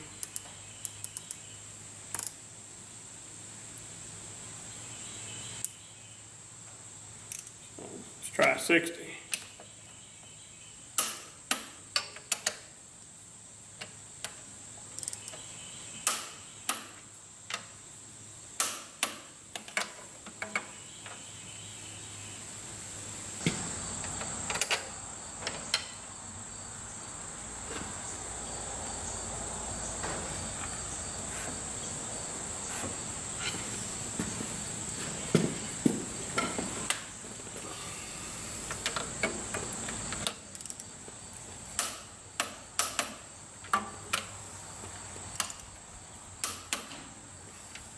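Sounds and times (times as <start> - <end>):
torque wrench clicking: 2.1 - 2.4, 40.2 - 40.9.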